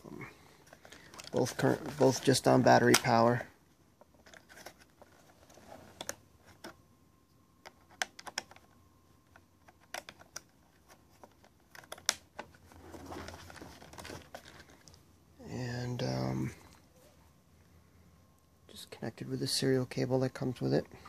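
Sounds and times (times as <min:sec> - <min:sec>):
fingers handling plastic case: 0:04.0 - 0:06.8, 0:07.6 - 0:15.0.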